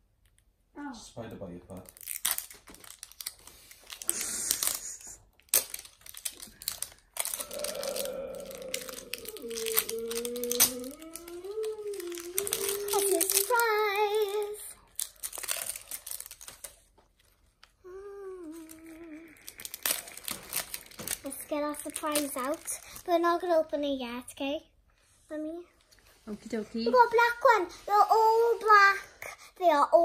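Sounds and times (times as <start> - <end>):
wrapping crinkling and tearing: 1.7 - 23.6
child humming: 7.3 - 14.6, 17.8 - 19.5.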